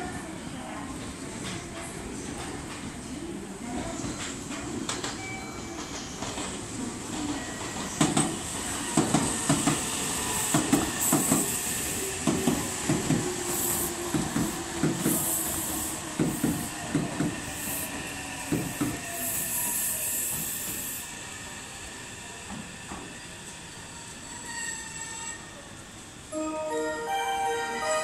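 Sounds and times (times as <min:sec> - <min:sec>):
train wheels knocking on rail joints: 0:07.9 - 0:19.0
high hiss: 0:13.4 - 0:21.2.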